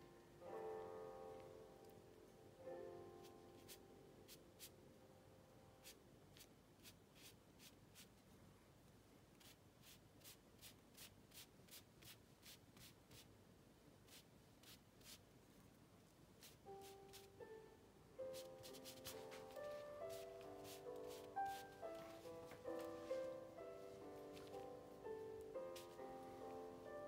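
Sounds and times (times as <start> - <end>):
ink brush swishing on paper: 3.3 - 4.7, 5.8 - 8.1, 14.1 - 15.2, 16.4 - 17.3, 18.3 - 24.6, 25.6 - 26.5.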